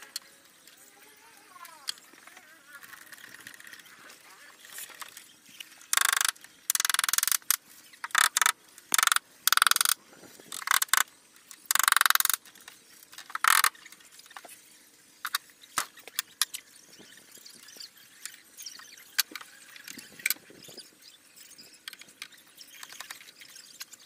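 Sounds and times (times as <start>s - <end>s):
small clicks: 4.7s - 14.5s.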